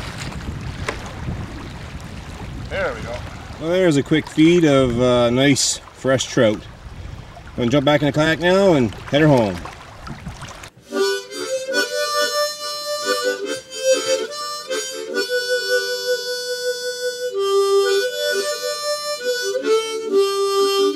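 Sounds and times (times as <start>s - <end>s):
instrumental background music: 10.8s - 20.9s.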